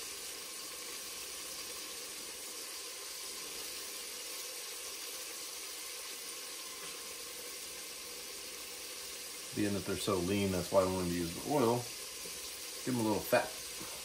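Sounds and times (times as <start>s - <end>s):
meat frying in hot oil: 0.0s - 14.0s.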